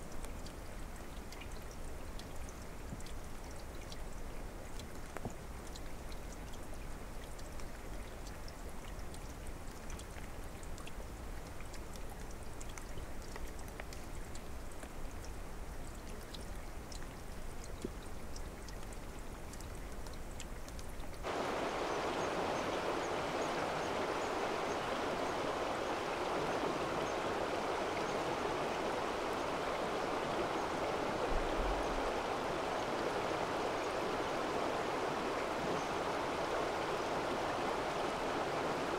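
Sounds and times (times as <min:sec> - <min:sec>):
water splashes and drips: 0:00.0 - 0:38.9
stream water rushing: 0:21.2 - 0:38.9.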